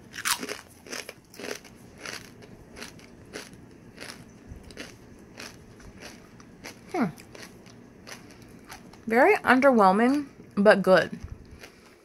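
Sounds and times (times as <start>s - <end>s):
potato chip crunching: 0.1s - 9.1s.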